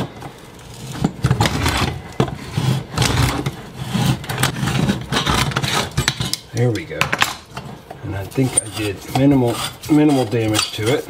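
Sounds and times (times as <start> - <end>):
metal scraping and grinding: 7.6 - 11.0.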